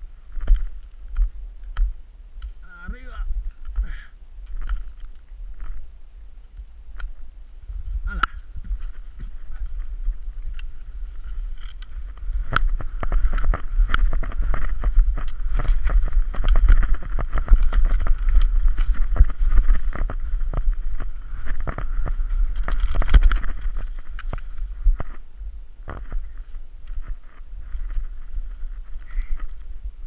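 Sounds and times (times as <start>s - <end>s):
wind buffeting microphone: 0.0s - 30.0s
skis sliding on snow: 8.6s - 24.9s.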